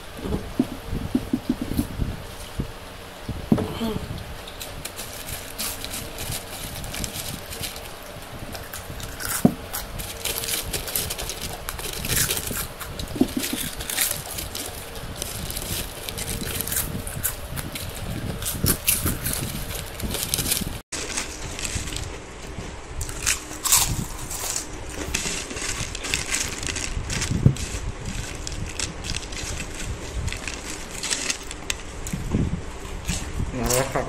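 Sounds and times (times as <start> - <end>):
people crunching potato chips: 4.6 - 22.2, 23.0 - 32.2.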